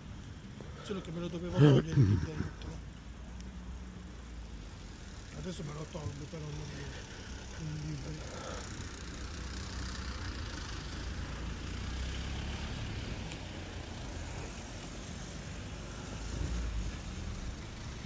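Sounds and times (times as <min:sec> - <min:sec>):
road traffic rumble: 0:00.0 - 0:18.0
vehicle passing by: 0:05.7 - 0:18.0.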